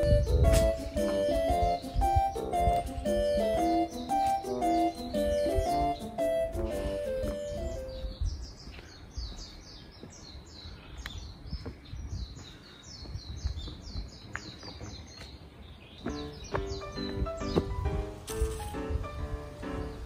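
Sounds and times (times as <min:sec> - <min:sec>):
background music: 0:00.0 - 0:08.0, 0:16.1 - 0:20.0
bird chirping: 0:00.0 - 0:18.0, 0:19.6 - 0:20.0.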